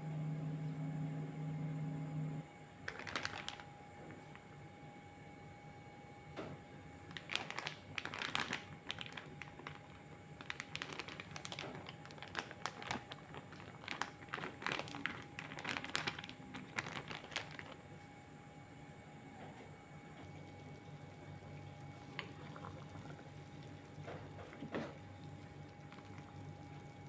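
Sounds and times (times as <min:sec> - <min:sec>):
plastic packet crinkling: 0:02.8 - 0:04.4, 0:07.0 - 0:17.9.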